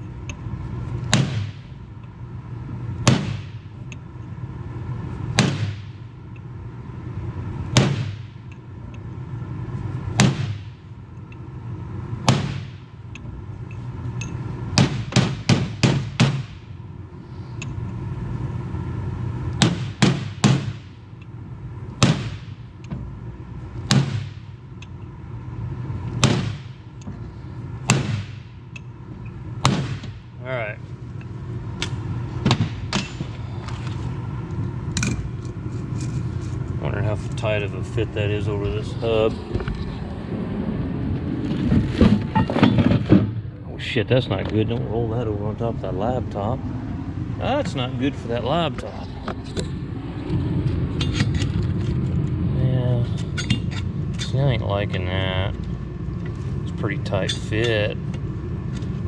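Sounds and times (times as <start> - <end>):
steady hum: 0.0 - 59.0
hammer striking steel punch: 1.1 - 1.7, 3.0 - 3.6, 5.4 - 6.0, 12.3 - 12.9, 19.6 - 21.0, 26.2 - 26.8, 27.9 - 28.6.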